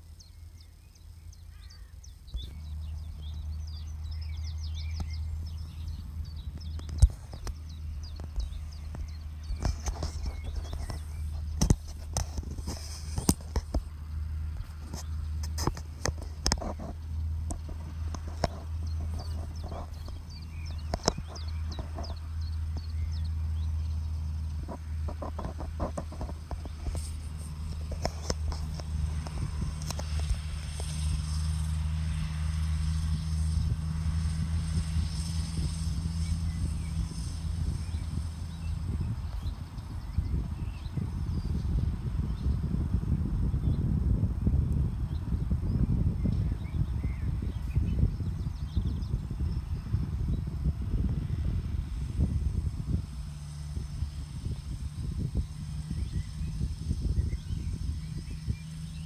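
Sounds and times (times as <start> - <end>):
tractor diesel engine droning: 0.0 - 59.0
sharp irregular clicks and knocks: 20.8 - 22.2.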